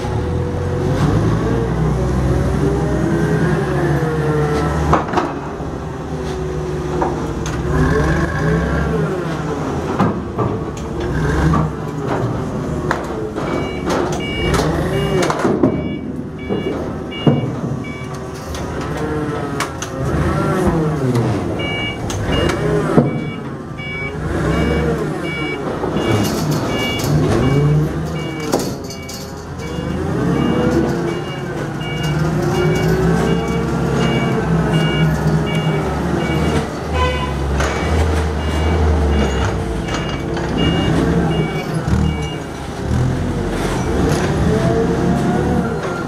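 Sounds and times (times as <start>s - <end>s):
forklift engine revving: 0.0s - 46.0s
reversing alarm beeps: 13.5s - 18.2s, 21.6s - 42.5s.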